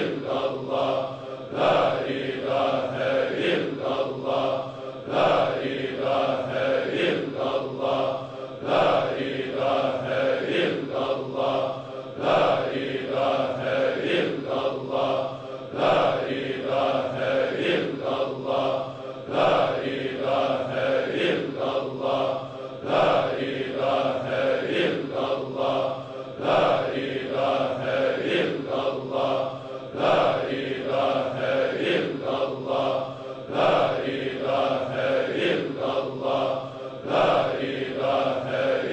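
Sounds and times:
chanting voice: 0:00.0 - 0:38.9.

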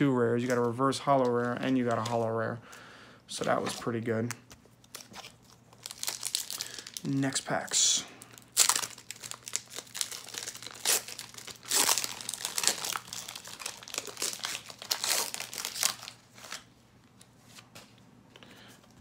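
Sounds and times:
foil wrapper crinkling and tearing: 0:04.8 - 0:16.7.

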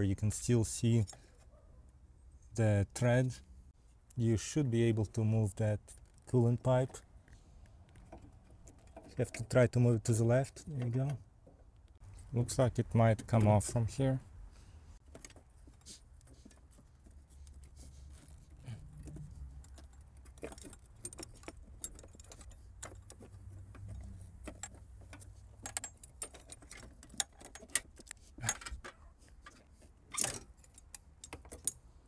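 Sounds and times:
metallic clinks and scrapes: 0:15.0 - 0:32.0.

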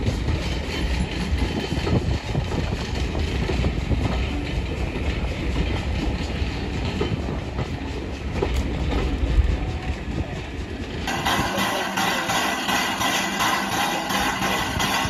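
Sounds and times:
faint rail clicks: 0:00.0 - 0:15.0
train wheels rumbling on rails: 0:00.0 - 0:15.0.

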